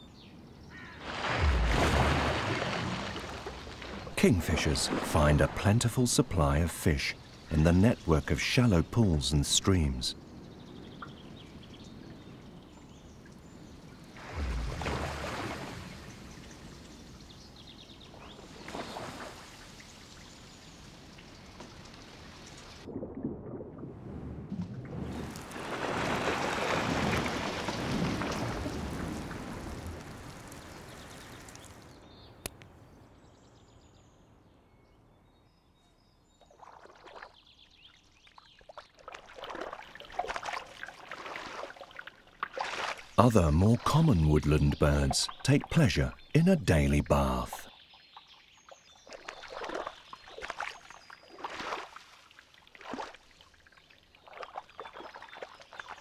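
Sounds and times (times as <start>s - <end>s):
bird diving into water: 0.7s - 5.9s, 13.4s - 31.9s, 36.4s - 43.8s, 48.4s - 56.0s
bird bathing splashes: 0.7s - 6.4s, 10.8s - 23.6s, 24.9s - 31.9s, 36.3s - 43.9s, 47.2s - 56.0s
water splashing: 0.9s - 9.6s, 13.9s - 17.4s, 18.3s - 31.8s, 36.5s - 56.0s.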